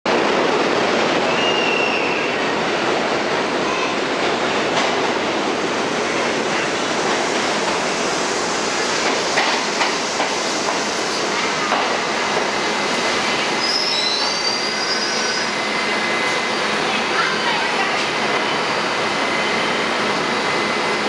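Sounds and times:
train wheels rumbling on rail: 0:00.1 - 0:21.0
high wheel squeal: 0:13.6 - 0:15.6.

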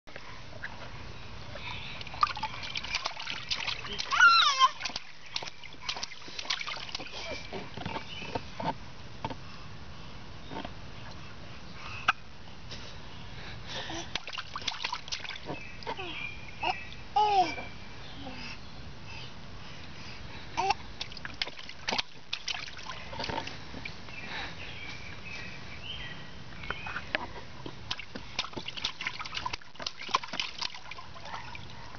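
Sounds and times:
baby splashing water: 0:01.8 - 0:08.5, 0:13.9 - 0:17.6, 0:20.6 - 0:23.8, 0:27.6 - 0:31.9
baby squealing: 0:03.9 - 0:05.0.

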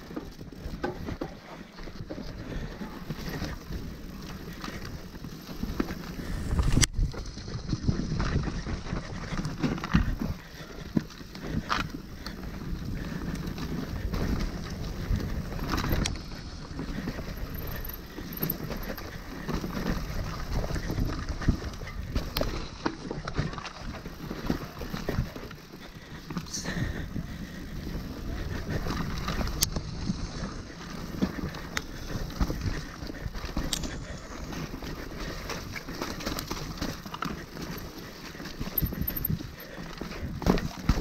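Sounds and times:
bike tyre rumble on dirt: 0:00.0 - 0:41.0
wind on microphone: 0:05.7 - 0:10.3.

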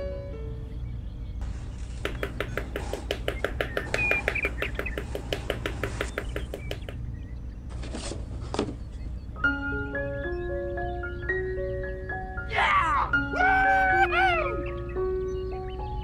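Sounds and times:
mallet tapping wooden posts: 0:01.9 - 0:07.0.

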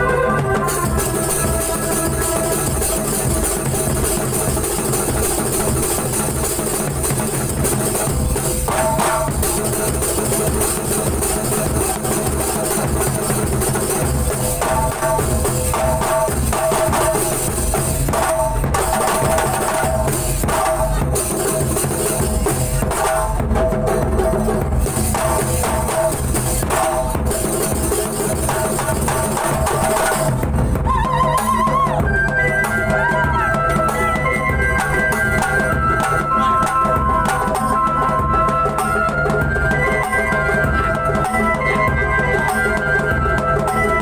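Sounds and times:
bass drum: 0:00.0 - 0:32.3
frame drums in fast rhythm: 0:00.0 - 0:44.0.

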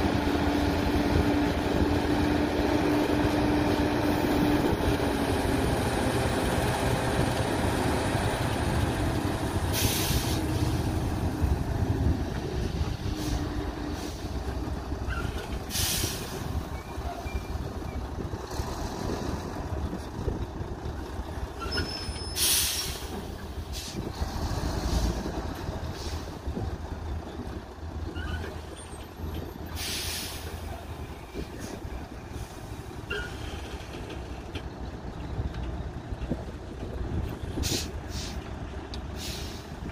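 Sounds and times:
diesel truck engine rumble: 0:00.0 - 0:39.9
air brake hisses: 0:09.7 - 0:10.8, 0:15.7 - 0:16.4, 0:22.2 - 0:24.0, 0:29.8 - 0:30.7, 0:37.6 - 0:38.4, 0:39.2 - 0:39.8.

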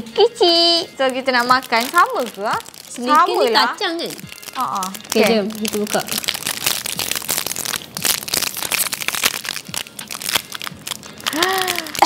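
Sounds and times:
plastic wrappers crinkling: 0:00.7 - 0:12.0.

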